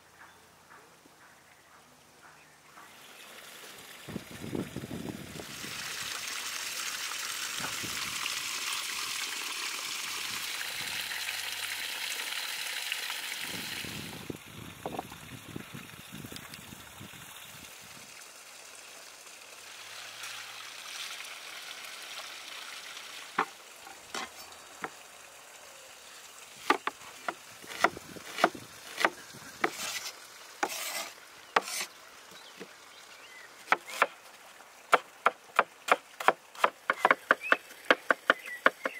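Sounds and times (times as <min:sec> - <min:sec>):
water pouring and splashing: 0:02.9 - 0:38.9
knife chopping on cutting board: 0:27.7 - 0:30.0.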